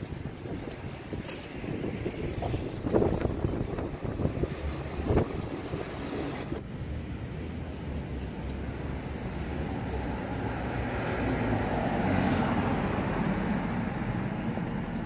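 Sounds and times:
street traffic noise: 0.0 - 15.0
vehicle passing: 3.8 - 15.0.

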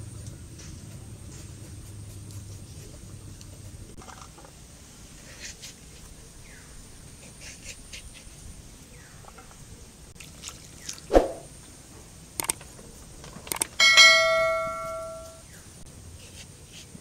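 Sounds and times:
blade scraping potato: 7.1 - 8.4.

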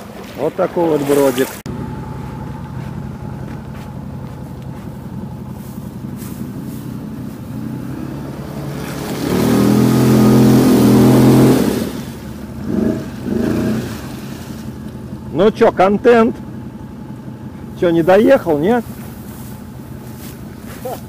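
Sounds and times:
atv engine idling and revving: 0.0 - 21.0.

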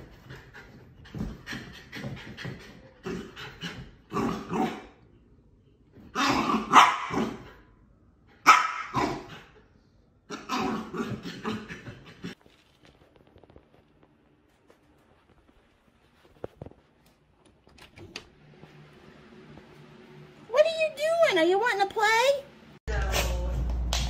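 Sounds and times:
small dog barking and growling: 3.0 - 5.0, 6.1 - 7.6, 8.4 - 9.6, 10.3 - 12.4.

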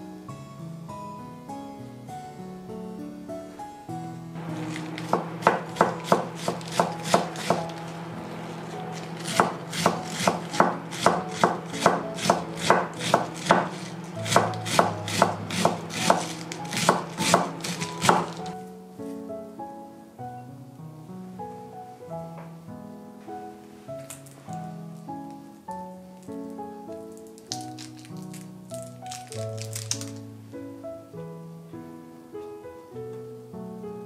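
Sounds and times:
knife chopping on wooden board: 4.5 - 7.8, 9.0 - 18.6.

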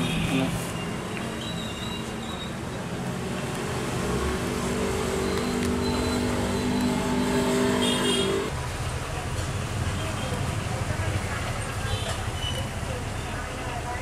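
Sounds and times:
vehicle engine humming: 2.9 - 8.6.

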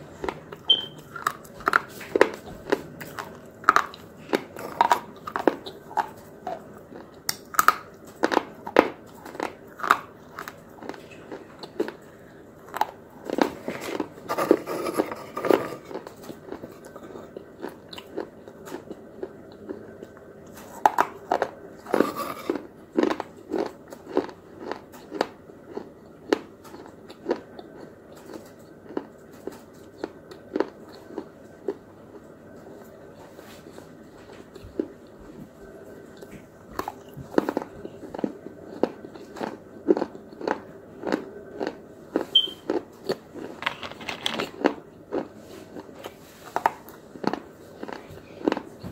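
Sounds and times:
person crunching brittle sticks: 20.8 - 31.3, 36.8 - 45.9, 46.6 - 48.6.

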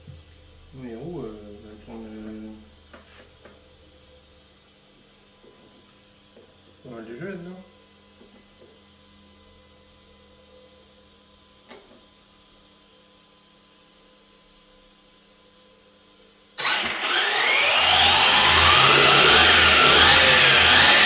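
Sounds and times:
electric motor whine: 16.6 - 21.0
cooling fans humming: 16.8 - 21.0.

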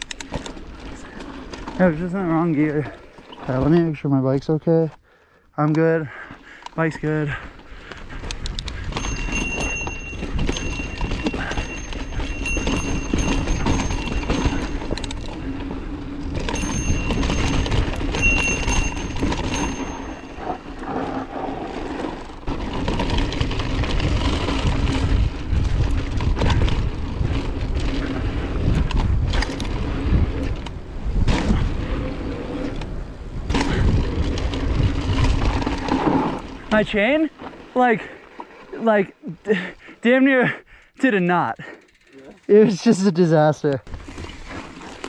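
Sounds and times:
bike chain and frame rattling: 0.0 - 4.1, 6.1 - 45.0
tyres crunching over dirt: 6.8 - 38.8
wind rumbling on microphone: 8.0 - 36.8.

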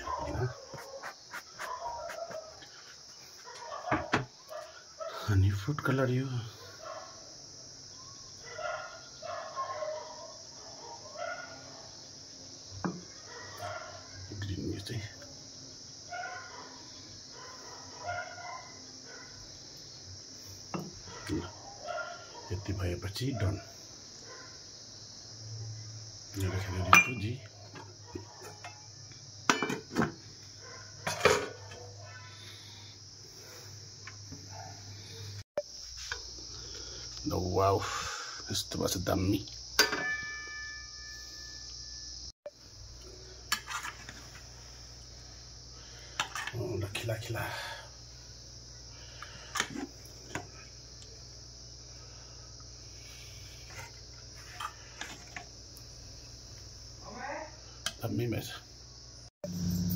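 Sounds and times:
glass lid clinking on pot: 26.9 - 27.3, 29.5 - 29.9, 39.8 - 40.8
high-pitched whine: 59.4 - 59.9
low hum: 59.4 - 59.9.

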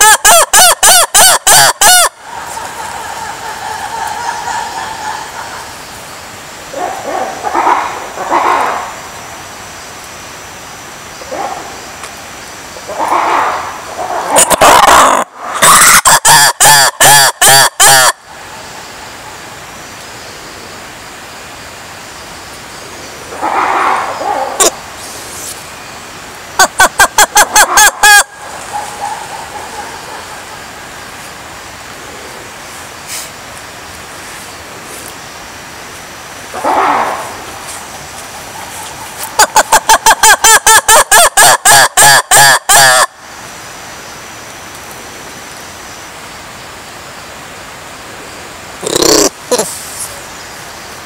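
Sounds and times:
faint steady hiss: 0.0 - 51.0
lemur calling: 26.6 - 31.0, 36.5 - 43.1, 48.8 - 50.2.

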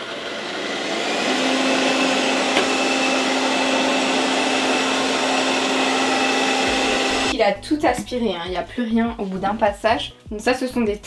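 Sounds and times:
robot vacuum running: 0.0 - 7.3
vacuum click: 2.3 - 3.8.

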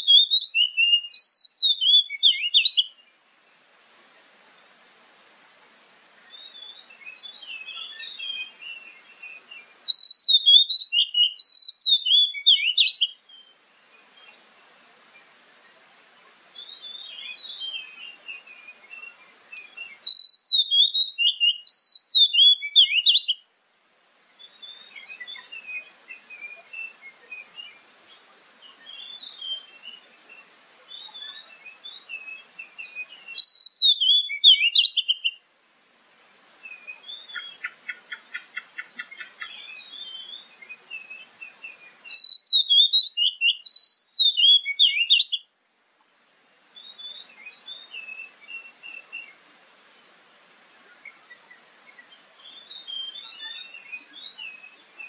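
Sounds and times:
bird singing clear rapid notes: 16.6 - 23.4, 30.9 - 35.4, 36.8 - 45.4.

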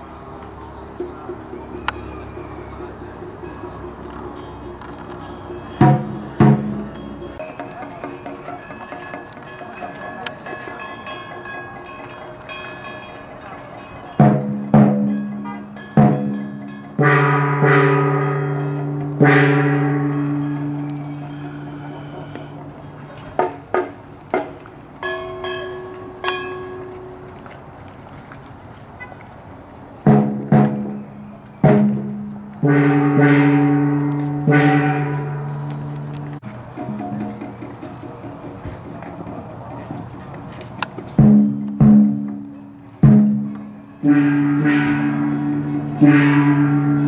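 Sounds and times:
large gong struck: 14.2 - 22.8, 31.7 - 35.8, 41.2 - 47.0.

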